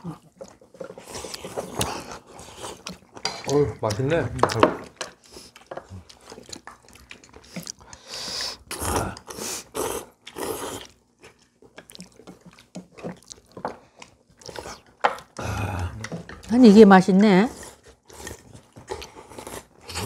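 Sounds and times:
people chewing: 0.0 - 20.0
chopsticks clicking on bowls: 2.8 - 5.9
noodle slurping: 17.6 - 20.0.

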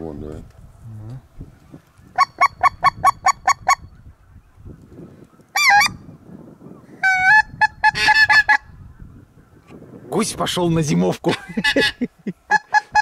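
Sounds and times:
goose call honks: 7.0 - 8.7, 11.4 - 13.0.

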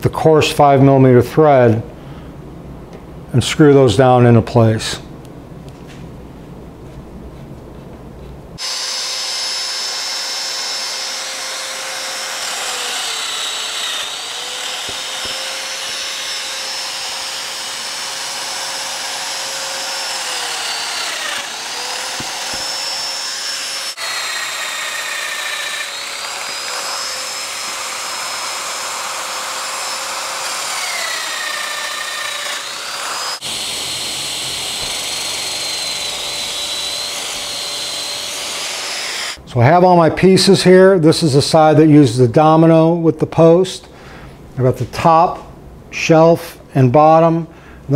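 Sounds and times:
power tool cutting into plywood: 8.6 - 39.4.

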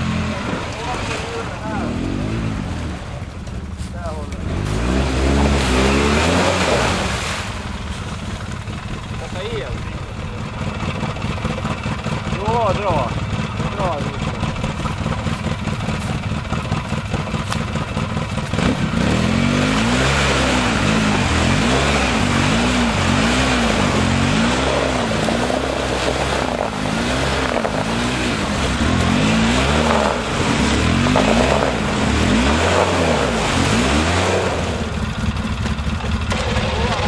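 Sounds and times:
quad bike engine revving: 0.0 - 37.0
wheels spinning: 34.7 - 37.0.

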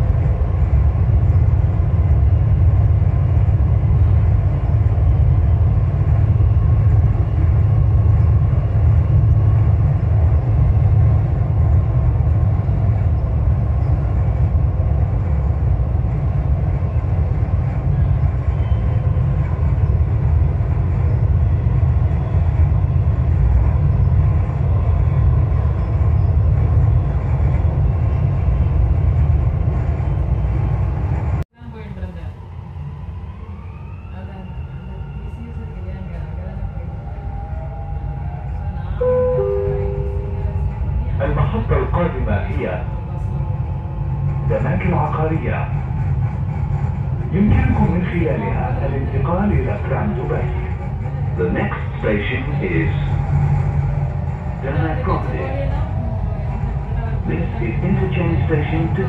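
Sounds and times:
train rumbling inside car: 0.0 - 59.0
faint hum: 39.0 - 42.5.

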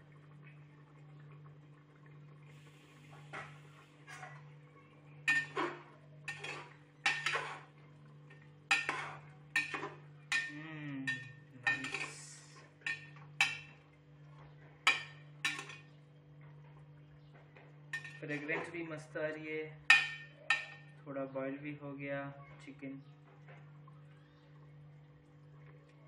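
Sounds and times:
metal ladle scraping pot: 5.3 - 13.7, 14.9 - 15.8, 18.0 - 18.8, 19.9 - 20.9.

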